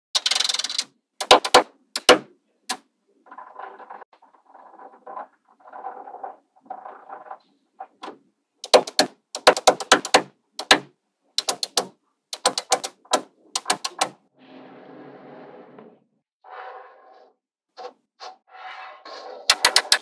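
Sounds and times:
magnetic balls clicking: 0.2s - 2.9s, 8.0s - 14.2s, 19.5s - 20.0s
soft scrape: 14.3s - 19.5s.

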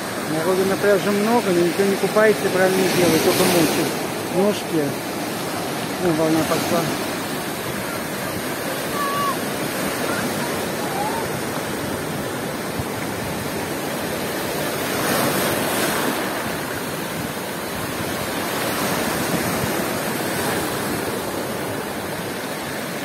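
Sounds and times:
waves breaking on beach: 0.0s - 23.0s.

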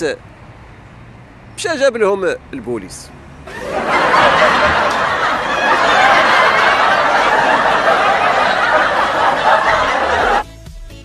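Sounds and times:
crowd laughing: 3.5s - 10.4s.

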